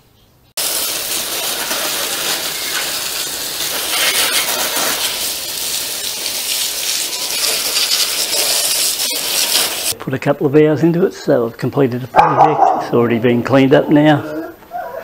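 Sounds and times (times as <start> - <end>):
hose spraying water: 0.6 - 10.0.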